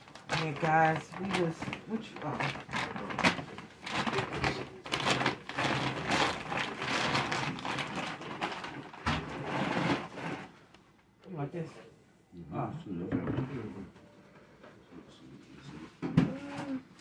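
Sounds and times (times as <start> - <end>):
plastic bags rustling: 0.0 - 10.8.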